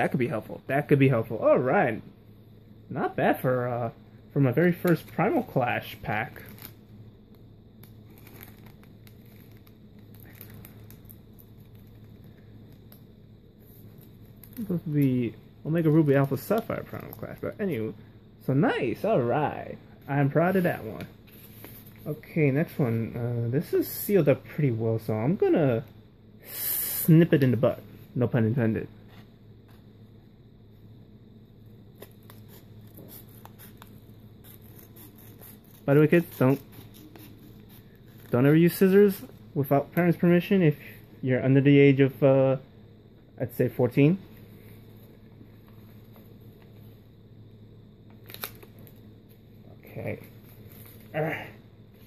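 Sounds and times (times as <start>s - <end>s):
low steady hum: 0.0s - 52.0s
trading cards and foil wrapper crinkling: 4.7s - 6.8s, 7.8s - 13.0s, 15.8s - 17.9s, 48.1s - 49.0s
scissors snipping paper: 32.0s - 38.4s.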